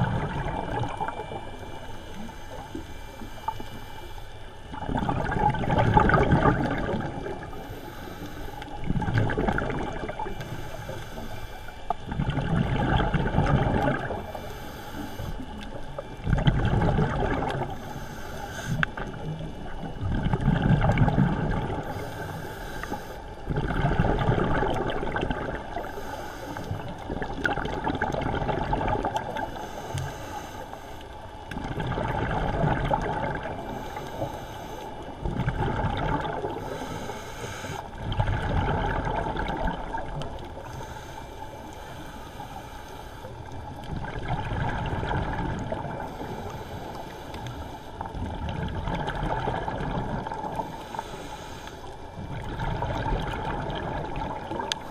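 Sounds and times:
scuba regulator bubbles gurgling: 0.0s - 54.9s.

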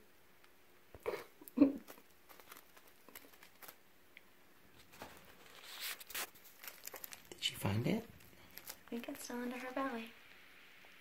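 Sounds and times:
plastic wrap crinkling: 1.1s - 3.9s, 4.7s - 10.1s
small animal clicks and rustles: 1.8s - 9.8s.

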